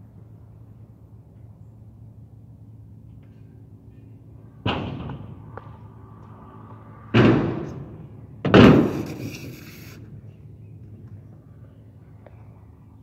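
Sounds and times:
scooter banging on metal ramp: 4.6 - 5.4, 7.1 - 9.6
wheels rolling on ramp: 4.7 - 10.1.

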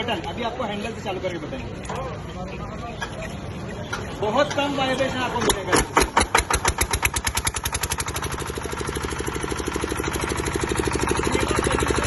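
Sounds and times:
diesel generator engine running: 5.6 - 12.0.

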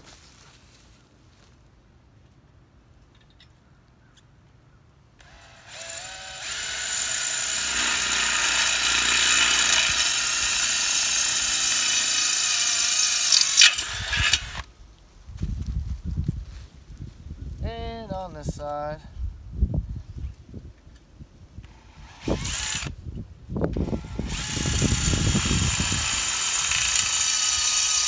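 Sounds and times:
cordless drill boring through steel: 5.2 - 14.7, 21.6 - 23.0, 23.8 - 28.0
drill click: 5.2 - 14.7, 21.6 - 22.9, 23.9 - 28.0.

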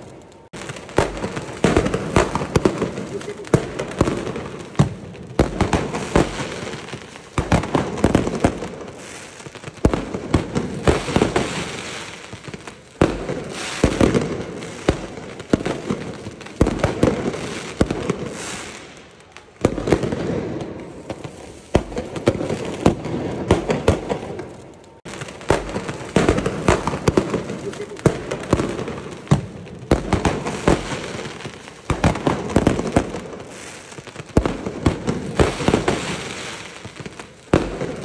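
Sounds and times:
fireworks bangs and crackles: 0.0 - 38.0.

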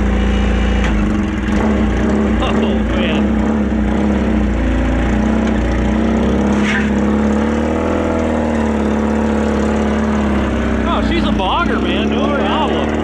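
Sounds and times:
engine running at low revs: 0.0 - 13.0.

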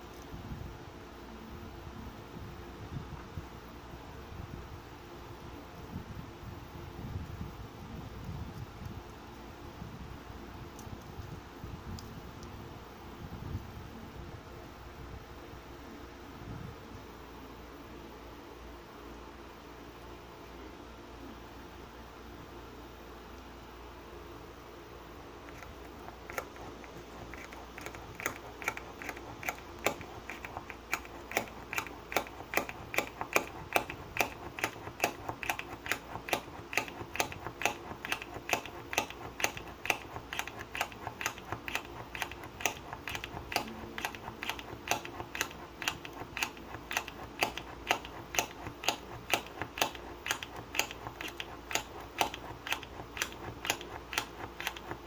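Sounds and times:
push drill clicking: 25.5 - 55.0.

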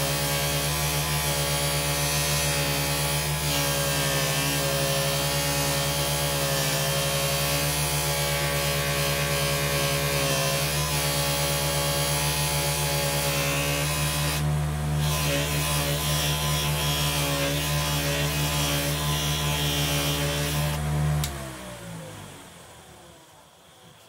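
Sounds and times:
bench grinder motor humming: 0.0 - 21.5.

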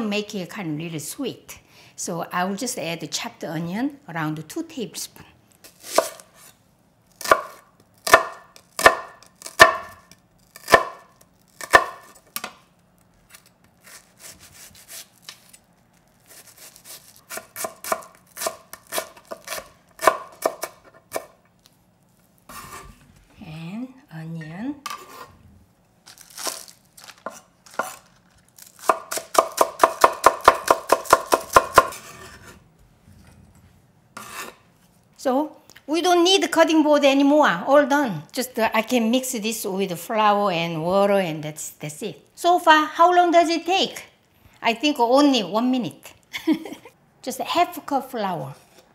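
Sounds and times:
knife chopping on wooden board: 7.2 - 10.0, 10.6 - 12.1, 16.8 - 21.3, 28.8 - 32.5.

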